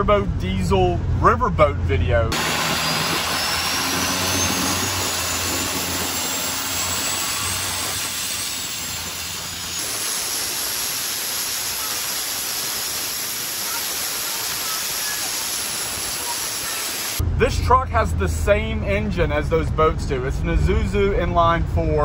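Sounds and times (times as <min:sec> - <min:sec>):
boat diesel engine hum: 0:00.0 - 0:22.0
wind and water spray hiss: 0:02.4 - 0:17.2
faint high whine: 0:02.4 - 0:18.3.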